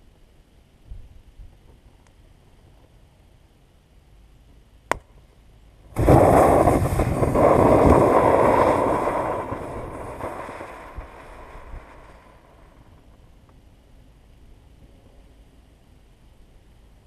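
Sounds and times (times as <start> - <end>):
battery venting with rushing hiss: 5.9 - 12.9
sharp crack: 6.0 - 12.8.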